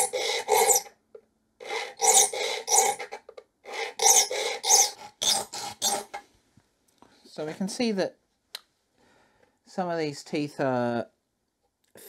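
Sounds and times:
file rasping across saw teeth: 0.0s - 0.9s, 1.6s - 6.2s.

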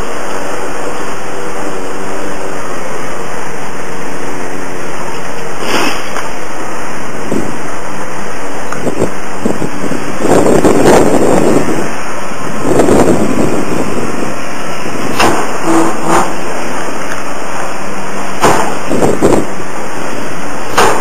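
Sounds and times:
excavator demolition rushing noise: 0.0s - 21.0s
debris knocks: 20.7s - 21.0s.

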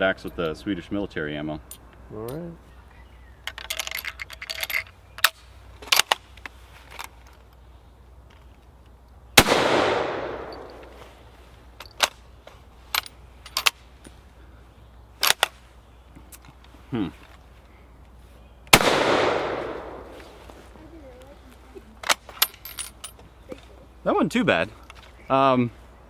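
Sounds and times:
cartridges clicking and rattling: 3.4s - 7.6s, 8.2s - 10.9s, 22.0s - 23.2s
loud rifle shot echoing: 9.4s - 10.8s, 18.7s - 20.2s.

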